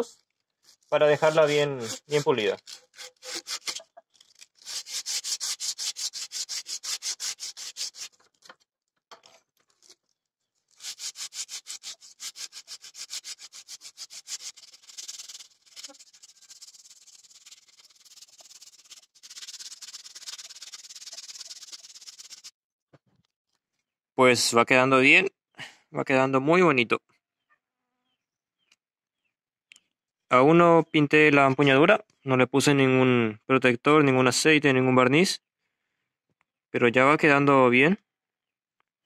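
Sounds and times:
sandpaper rubbing on wood: 0.8 - 3.8, 4.5 - 8.2, 10.7 - 22.5.

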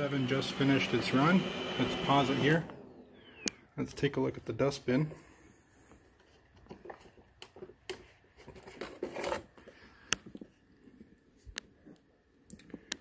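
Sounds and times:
plastic scraping: 6.6 - 9.8.

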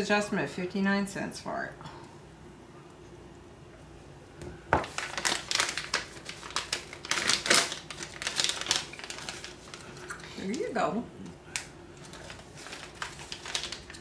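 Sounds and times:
plastic packet crinkling: 4.8 - 10.8, 11.5 - 14.0.

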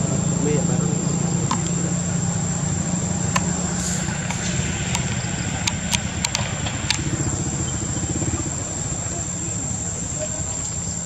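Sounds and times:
high-pitched whine: 0.0 - 11.0
low motor hum: 0.0 - 11.0
sharp clicks: 1.4 - 1.8, 3.3 - 7.2.

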